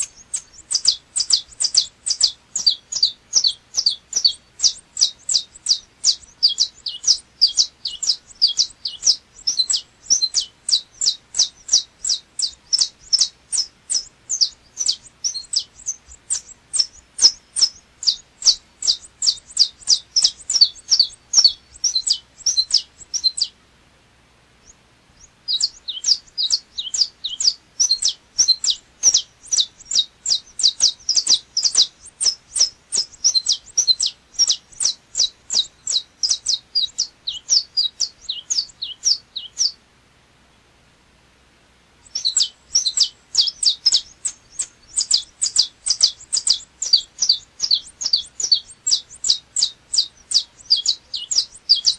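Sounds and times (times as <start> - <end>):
finch singing sharp high notes: 0.0 - 23.6, 24.6 - 39.8, 42.0 - 51.9.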